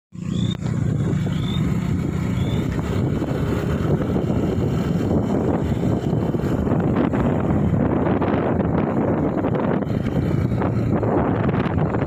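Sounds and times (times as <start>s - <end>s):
motorbike engine and road noise: 0.1s - 12.0s
wind rushing over microphone: 0.2s - 12.0s
high rising chirps: 1.2s - 2.7s.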